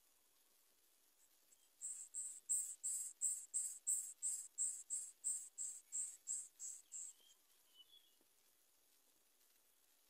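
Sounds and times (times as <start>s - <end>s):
insect chirping: 1.8s - 7.2s.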